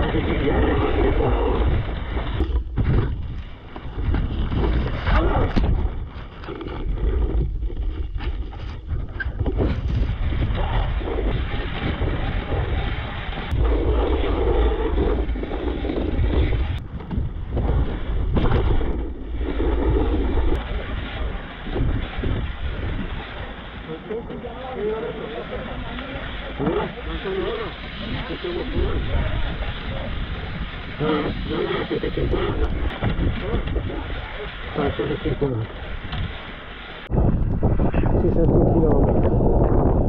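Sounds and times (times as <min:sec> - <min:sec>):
wind buffeting microphone: 0:00.0 - 0:40.0.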